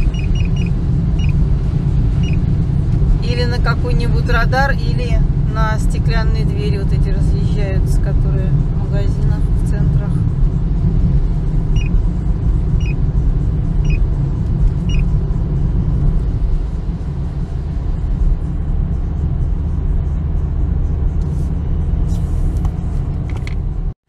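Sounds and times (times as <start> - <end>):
short high beeps: 0.0 - 1.4
car engine and tyres rumble: 0.0 - 24.0.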